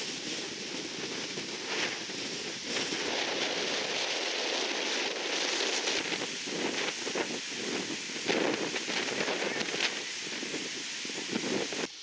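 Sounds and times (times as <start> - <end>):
steady rushing outdoor ambience: 0.0 - 12.0.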